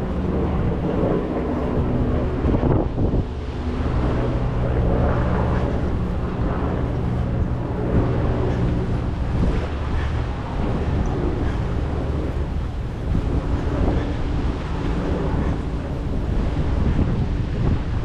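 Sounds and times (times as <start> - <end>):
large engine droning: 0.0 - 18.0
wind buffeting microphone: 0.0 - 18.0.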